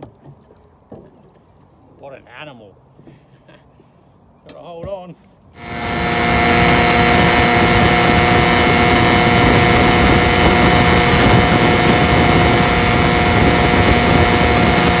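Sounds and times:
outboard motor running hard: 5.6s - 15.0s
water rushing and spraying: 5.6s - 15.0s.

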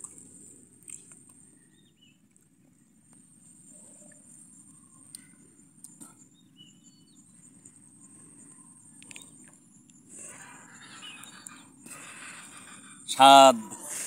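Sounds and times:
faint bird chirps: 1.4s - 14.0s.

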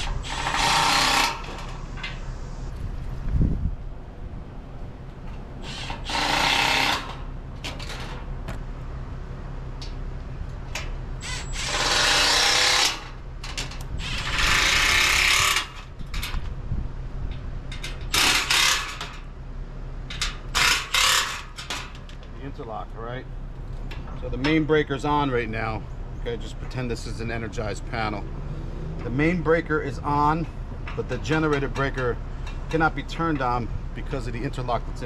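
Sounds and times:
power drill running: 0.0s - 1.8s, 5.6s - 7.2s, 11.2s - 13.1s, 14.0s - 15.8s
steady low hum: 0.0s - 35.0s.

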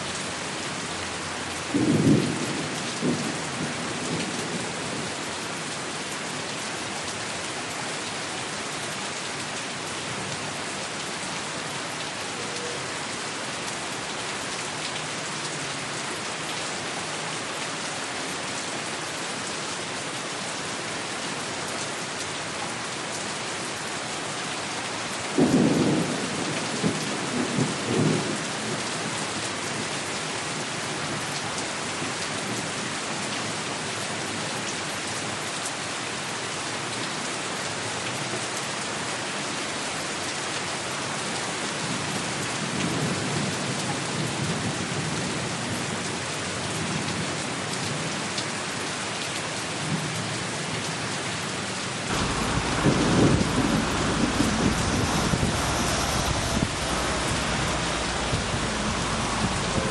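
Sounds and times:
steady rain hiss: 0.0s - 36.9s, 44.6s - 59.9s
low thunder rolls: 52.1s - 59.9s.

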